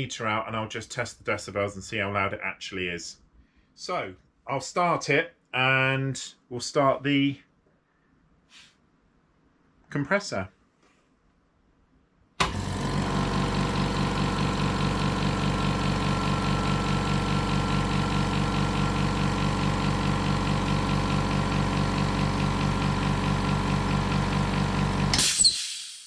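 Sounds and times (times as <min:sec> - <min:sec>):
air compressor pulsing: 0:12.4 - 0:25.6.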